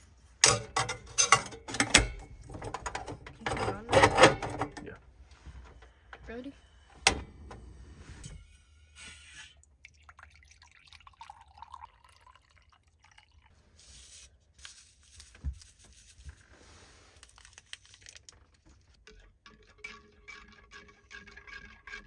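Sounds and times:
water pouring into a mug: 9.4 - 13.5, 19.0 - 22.0
powder poured into a mug: 9.8 - 14.7, 17.2 - 22.0.

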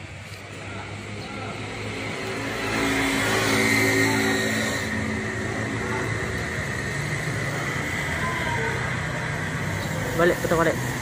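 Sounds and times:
engine humming steadily: 0.0 - 11.0.

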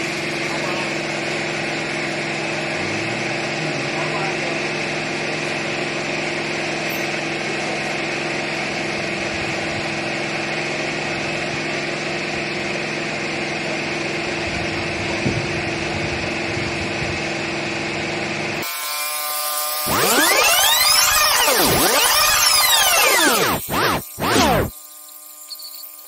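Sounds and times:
small engine humming: 0.0 - 26.0
ringing electronic sound effect: 19.9 - 26.0.

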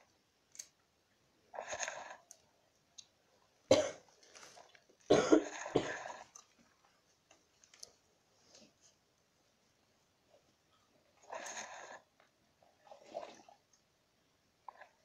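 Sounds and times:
person coughing: 3.7 - 4.1, 5.1 - 6.2.

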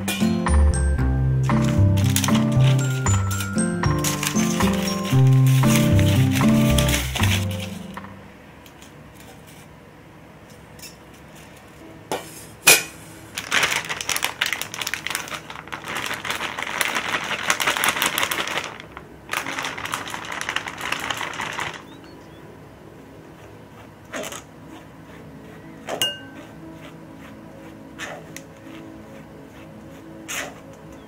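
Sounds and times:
metal clinking on glass: 0.1 - 5.8
paper bag crackling: 0.8 - 8.2, 13.3 - 22.0.

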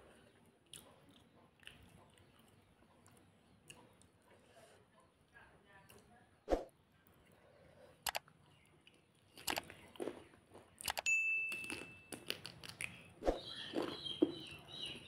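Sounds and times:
chewing and smacking: 0.0 - 5.1, 8.0 - 15.0
bell-like ding: 11.1 - 12.0.

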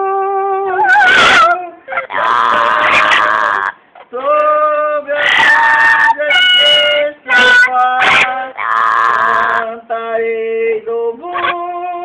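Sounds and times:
parrot whistling and calling: 0.8 - 3.3, 5.2 - 8.3.

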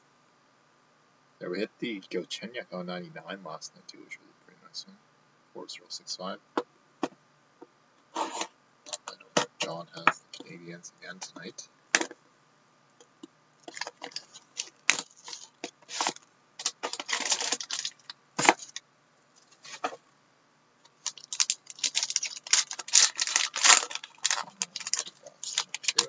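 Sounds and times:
plastic shrink wrap crinkling: 13.6 - 18.8, 20.9 - 26.0.

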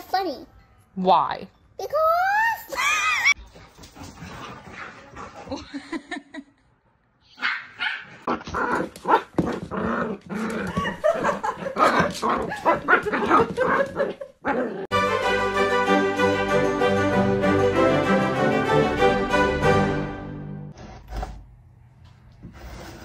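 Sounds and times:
dog barking and yipping: 7.4 - 9.3.

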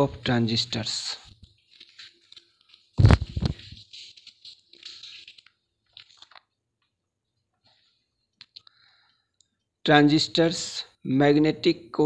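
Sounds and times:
crinkly plastic rustles: 1.4 - 6.6.

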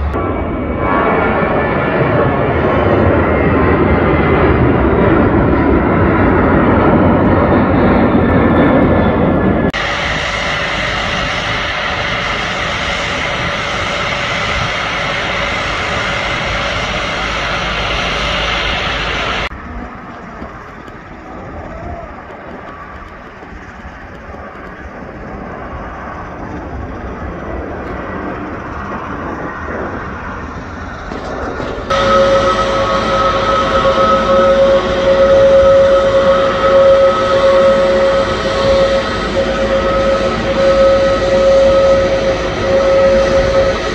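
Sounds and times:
airliner engines whining: 0.0 - 43.9
jet departing roar: 0.0 - 43.9
bright steady jet rush: 9.8 - 19.5, 31.9 - 43.9.

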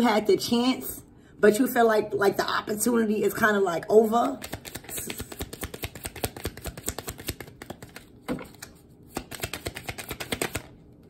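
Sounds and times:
cards being shuffled: 4.2 - 10.8.

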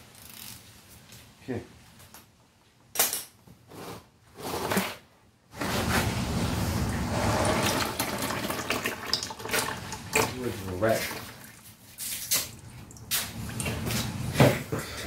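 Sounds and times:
oil pouring into pan: 7.6 - 10.4.

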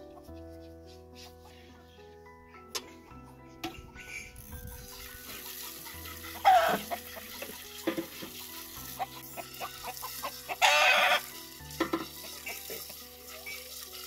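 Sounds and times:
tap water splashing on plastic: 5.3 - 13.1.

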